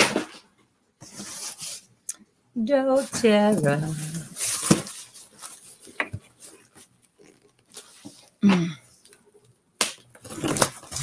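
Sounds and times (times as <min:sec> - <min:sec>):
tearing and rustling cardboard: 0:03.5 - 0:06.7, 0:10.1 - 0:11.0.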